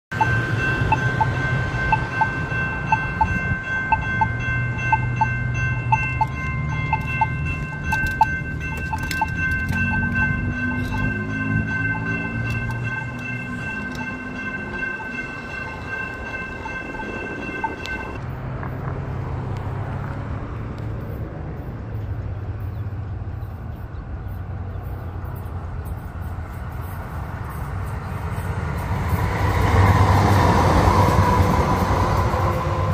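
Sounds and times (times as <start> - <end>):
railroad crossing bell ringing: 0.1 - 18.5, 23.5 - 32.9
light rail train passing: 0.1 - 32.9.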